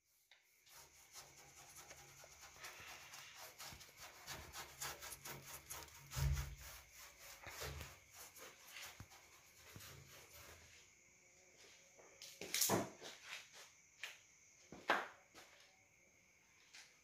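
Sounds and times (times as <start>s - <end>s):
hand rubbing fabric roof lining: 0.0s - 10.9s.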